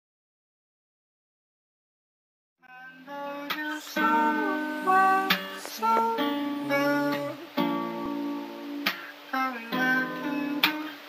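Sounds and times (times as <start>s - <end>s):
slow guitar melody: 2.7s - 11.0s.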